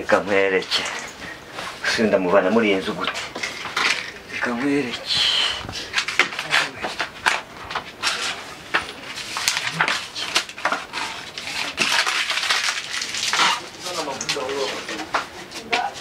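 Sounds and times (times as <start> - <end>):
paper crinkling and rustling: 5.6 - 16.0.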